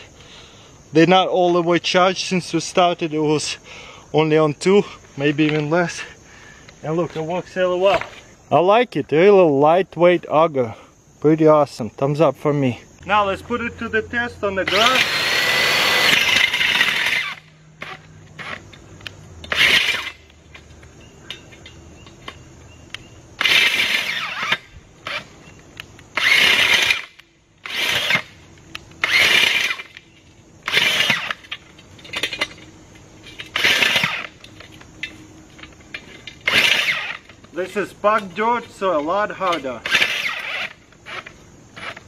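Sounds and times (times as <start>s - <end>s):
electric earth auger drilling ground: 14.6s - 20.7s, 23.4s - 25.3s, 26.1s - 30.0s, 30.6s - 32.6s, 33.2s - 34.9s, 35.5s - 37.6s, 39.5s - 42.0s.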